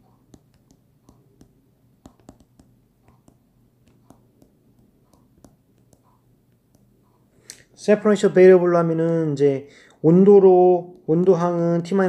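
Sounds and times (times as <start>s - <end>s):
stylus tapping on glass screen: 0.0s - 7.0s.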